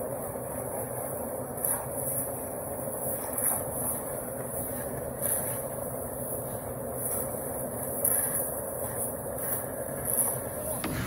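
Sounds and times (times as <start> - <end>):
concrete mixer running: 10.7 - 11.0.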